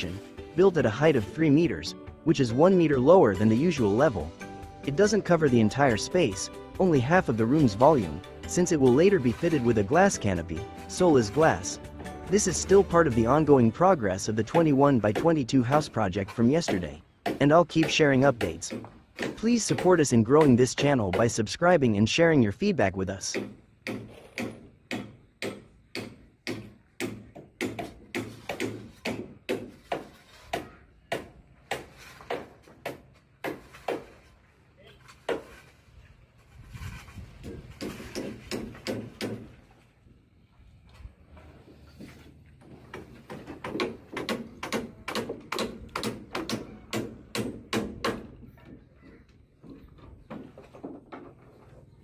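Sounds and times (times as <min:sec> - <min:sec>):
hammer knocking on wood: 0:23.3 - 0:34.1, 0:37.4 - 0:39.6, 0:42.6 - 0:49.0.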